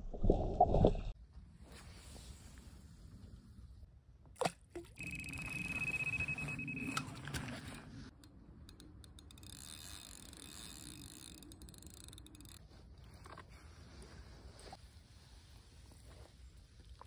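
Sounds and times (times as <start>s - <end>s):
reel clicks: 8.1s - 12.6s.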